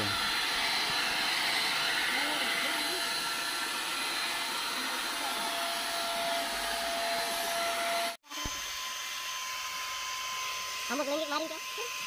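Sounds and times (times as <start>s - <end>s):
paint spray gun motor whine: 0.0s - 12.0s.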